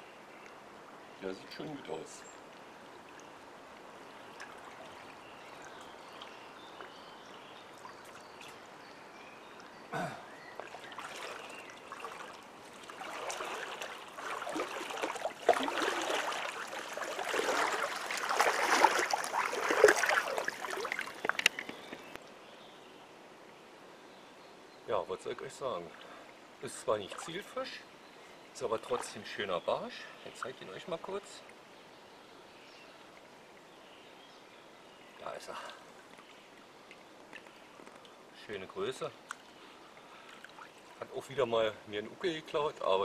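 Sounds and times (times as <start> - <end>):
water lapping quietly: 0.0 - 22.9, 25.1 - 43.0
water splashing around wading legs: 2.6 - 7.0, 10.6 - 22.2, 40.2 - 41.0.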